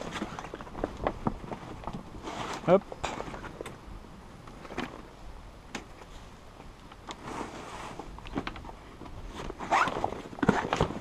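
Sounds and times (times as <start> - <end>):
rustling: 7.0 - 11.0.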